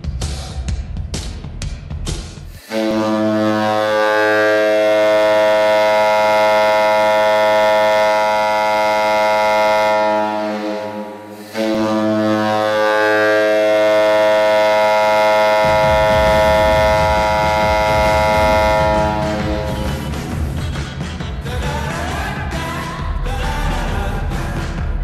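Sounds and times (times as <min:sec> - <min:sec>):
drums and bass music: 0:00.0 - 0:03.1, 0:15.4 - 0:25.0
goal horn blasts: 0:02.6 - 0:20.4.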